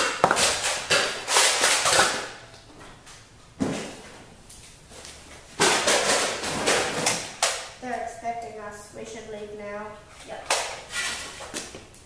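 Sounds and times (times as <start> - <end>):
objects rattling and scraping: 5.0 - 7.5.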